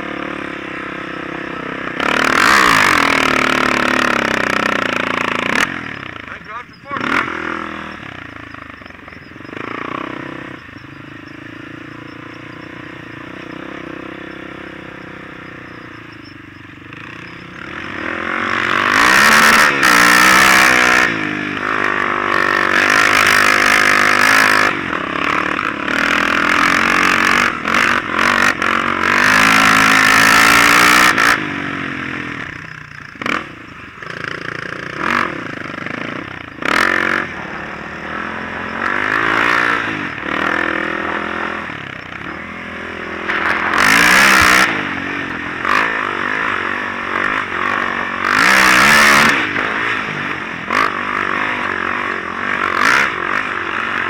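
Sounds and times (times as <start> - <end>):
off-road vehicle engine revving: 0.0 - 54.0.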